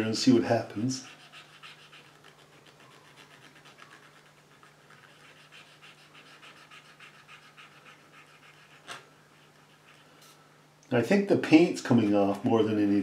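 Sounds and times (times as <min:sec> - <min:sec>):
cotton bud scrubbing painting: 0:00.0 - 0:10.2.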